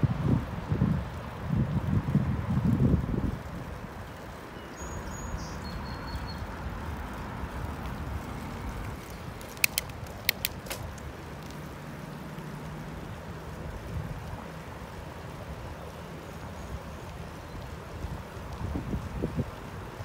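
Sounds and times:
bicycle rolling on pavement: 0.0 - 20.0
quick sharp clicks: 9.4 - 11.0.

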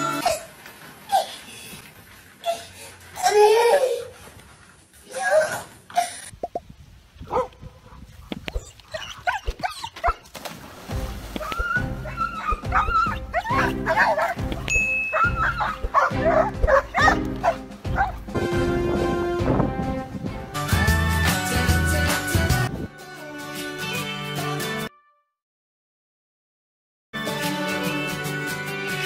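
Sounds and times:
dogs barking: 7.3 - 10.3, 11.3 - 18.3.

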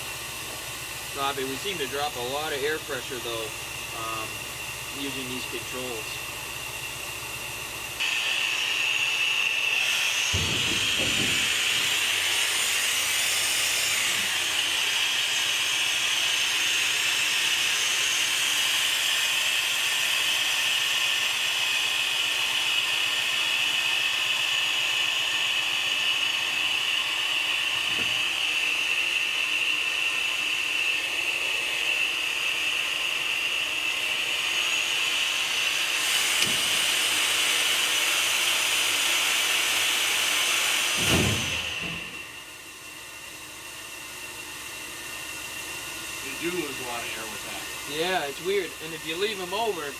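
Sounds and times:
compressed air hissing: 8.0 - 20.7
brief thump: 10.3 - 12.1, 27.9 - 28.2, 41.0 - 42.2.

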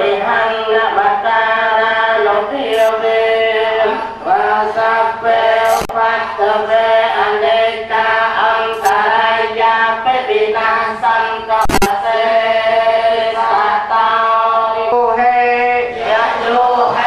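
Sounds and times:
monks chanting in unison: 0.0 - 17.0
sharp knock: 11.6 - 11.9.

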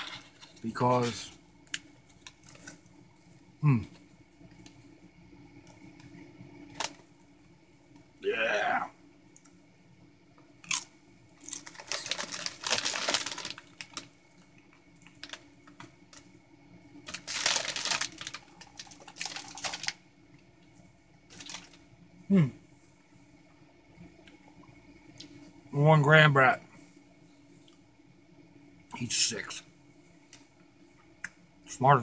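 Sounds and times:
short falling vocal sound: 8.2 - 8.9, 22.3 - 22.6
chips crunching: 10.6 - 14.1, 17.1 - 20.0
plastic bag crinkling: 11.4 - 14.1, 15.1 - 16.2, 17.0 - 20.0, 21.3 - 21.8.

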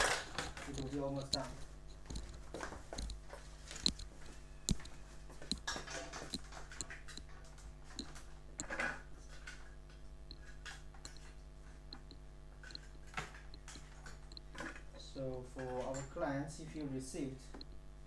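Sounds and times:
plastic clicks and taps: 0.3 - 4.1, 4.7 - 7.3.

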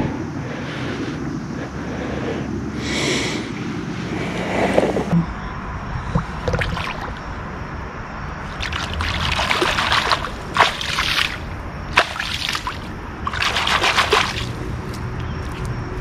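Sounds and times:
water sloshing and splashing: 6.0 - 7.5, 8.3 - 15.0.

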